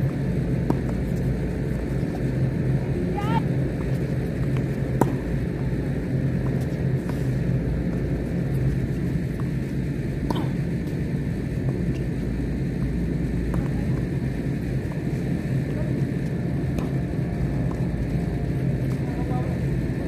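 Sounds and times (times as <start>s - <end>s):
racket hitting tennis ball: 4.9s - 5.4s.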